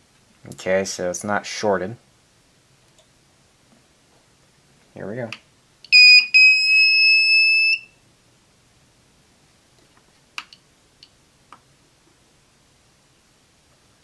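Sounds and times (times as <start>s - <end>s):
faint clicks: 2.8s - 3.2s
high-pitched inverter beep: 5.9s - 7.9s.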